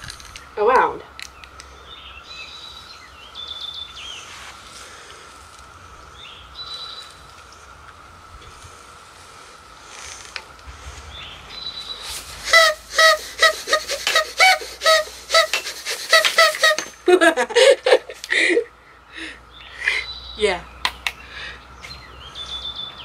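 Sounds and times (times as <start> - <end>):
party blower toots: 12.1 - 17.0.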